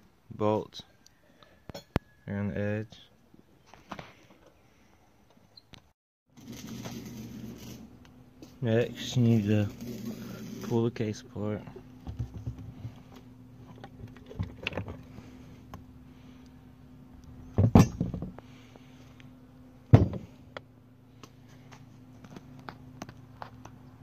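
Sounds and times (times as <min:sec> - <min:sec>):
metal clunks and clinks: 0:17.6 - 0:18.3.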